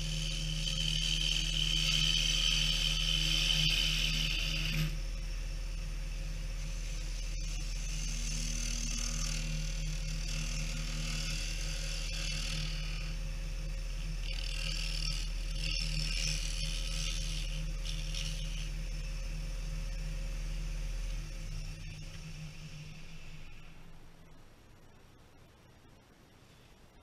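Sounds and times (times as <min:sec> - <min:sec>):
tool cutting wood hiss: 0:00.0 - 0:05.0, 0:06.6 - 0:13.2
wood lathe hum: 0:00.0 - 0:24.0.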